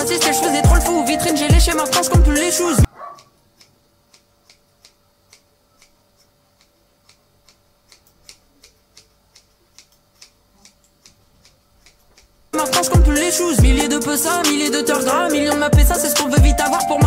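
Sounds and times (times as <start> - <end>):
scissors snipping hair: 3.2 - 13.0.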